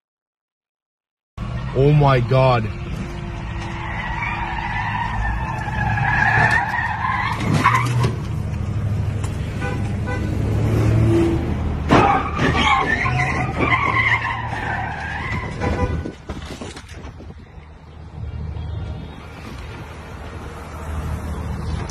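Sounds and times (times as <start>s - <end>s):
car tyres squealing: 2.9s - 8.4s, 9.6s - 16.8s.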